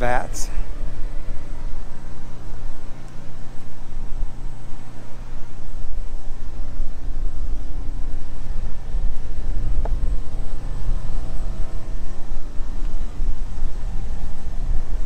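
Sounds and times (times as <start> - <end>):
loud uneven low rumble: 0.0 - 15.0.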